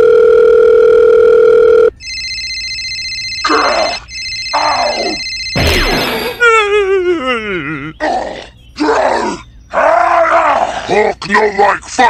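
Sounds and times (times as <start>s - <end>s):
electronic telephone ringtone: 0.0s - 6.4s
loud steady beep: 2.0s - 6.4s
wobbling falling cartoon groan: 3.4s - 10.9s.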